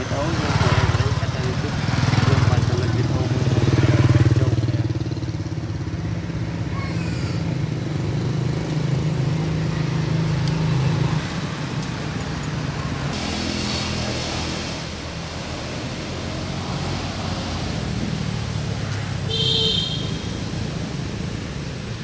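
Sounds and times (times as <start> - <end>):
vehicle engine humming: 0.0 - 6.8.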